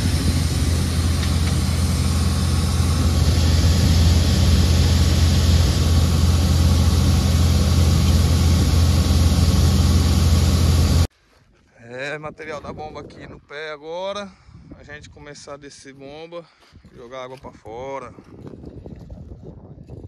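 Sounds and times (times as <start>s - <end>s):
heavy diesel engine running: 0.0s - 11.1s.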